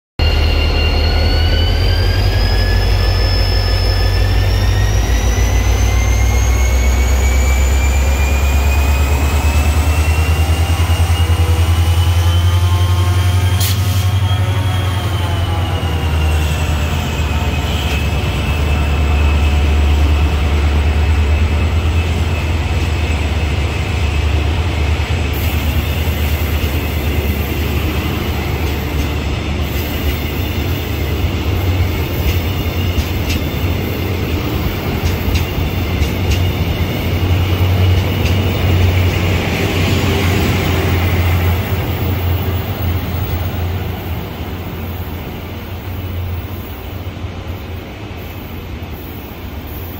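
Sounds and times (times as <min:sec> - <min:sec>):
thin high tone: 0:00.2 - 0:09.0
train coaches rumbling past: 0:00.2 - 0:49.9.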